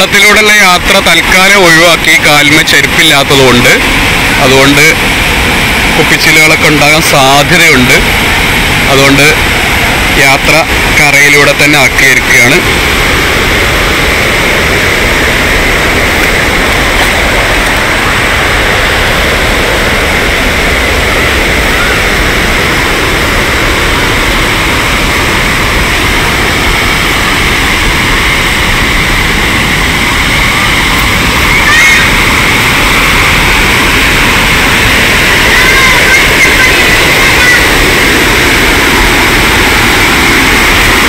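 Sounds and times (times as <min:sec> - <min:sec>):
water rushing over a weir: 0:00.0 - 0:41.0.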